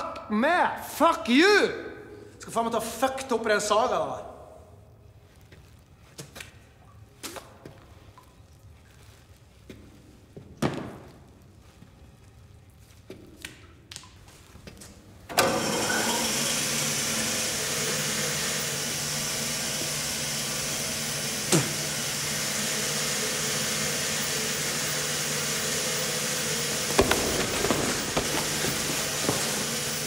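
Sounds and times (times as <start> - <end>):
band saw humming: 15.3 - 30.0.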